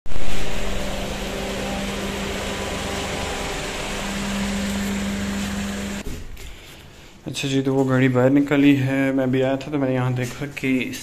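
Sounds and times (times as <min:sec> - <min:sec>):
car engine idling: 0:00.1 - 0:06.0.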